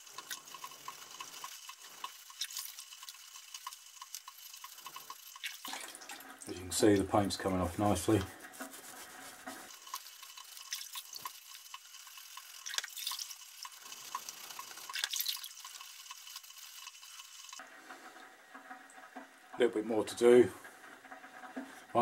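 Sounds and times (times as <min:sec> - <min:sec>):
small clicks: 0:00.0 - 0:05.6, 0:09.8 - 0:17.6
water splashing and dripping: 0:00.0 - 0:19.6
brush scrubbing metal: 0:06.7 - 0:14.8.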